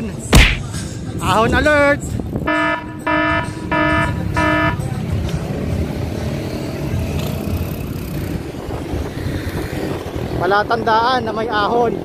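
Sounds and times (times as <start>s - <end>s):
wind and road noise: 0.0s - 12.0s
horn toots: 2.4s - 4.9s.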